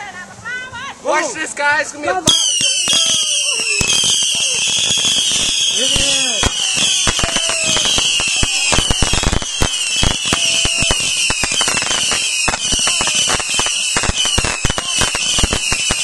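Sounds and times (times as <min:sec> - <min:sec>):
fireworks crackling and banging: 0:02.2 - 0:16.0
fireworks whistling: 0:02.2 - 0:16.0.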